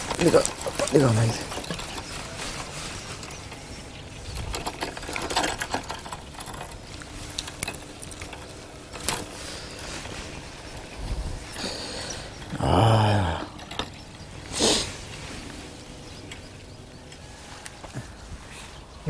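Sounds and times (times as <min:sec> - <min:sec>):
tackle clicks and rattles: 0:00.0 - 0:11.0.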